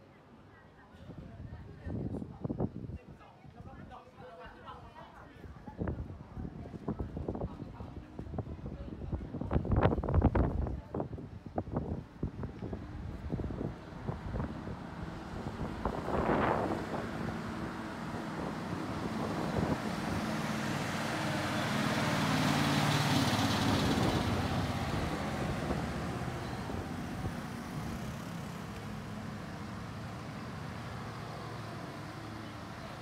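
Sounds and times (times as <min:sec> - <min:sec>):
motor vehicle passing: 0:13.0 - 0:33.0.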